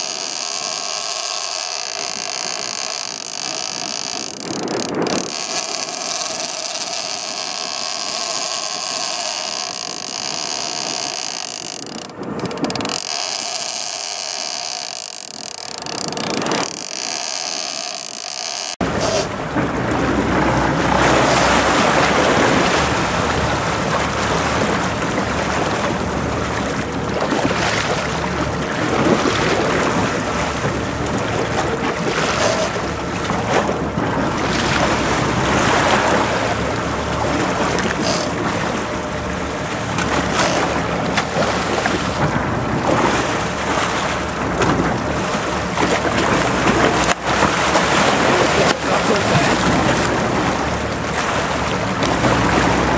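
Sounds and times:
fish thrashing and splashing: 0.0 - 19.4
sea water churning against boat: 0.0 - 52.9.

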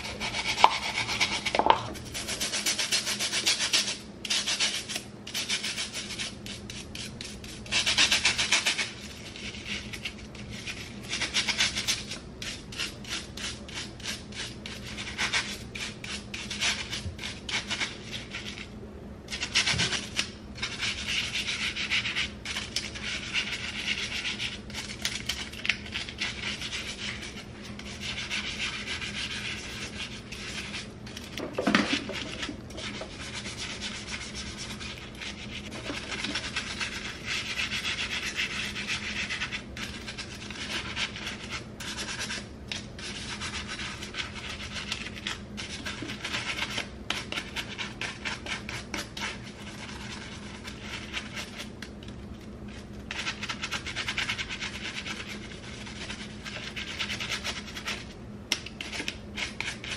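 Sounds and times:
scrub brush scrubbing plastic: 0.0 - 18.7, 19.3 - 59.9.

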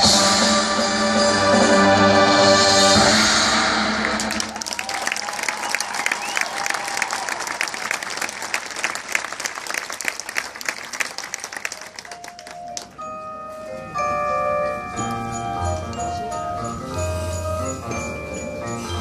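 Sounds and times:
crowd applause: 3.9 - 12.9
mallet percussion notes: 12.1 - 19.0.

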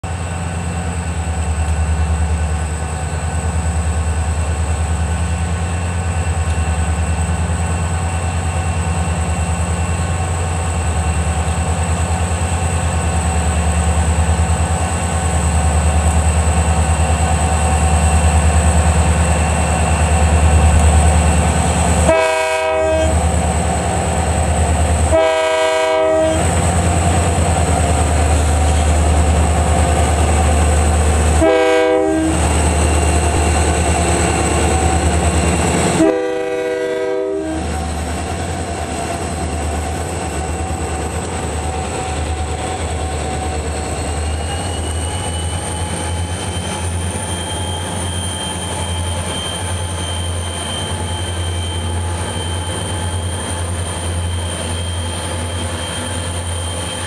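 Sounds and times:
diesel locomotives droning: 0.0 - 57.0
train horn: 22.0 - 23.2, 25.0 - 26.6, 31.4 - 32.5, 35.9 - 37.8.

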